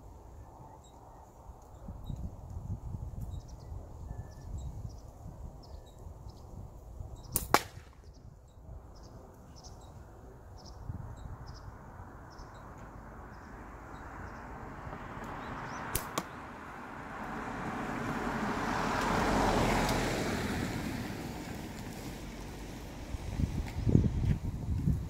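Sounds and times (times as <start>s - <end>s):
slingshot snap: 7.3s - 8.0s, 15.9s - 16.4s.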